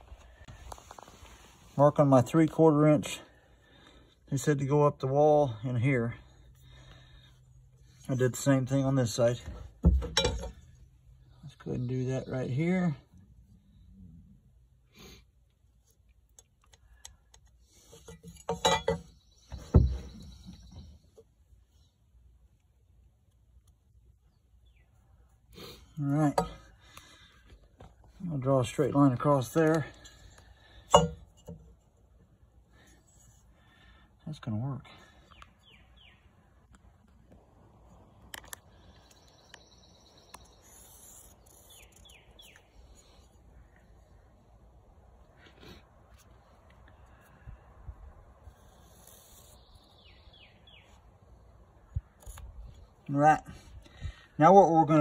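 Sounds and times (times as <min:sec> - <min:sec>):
faint bird chirps: 0:19.0 - 0:22.0, 0:38.5 - 0:44.5.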